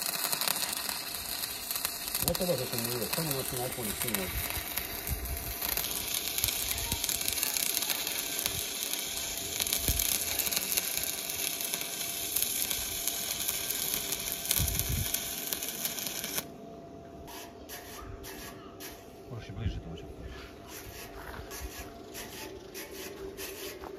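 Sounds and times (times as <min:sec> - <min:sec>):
arc welding crackling sizzle: 0:00.0 - 0:16.6.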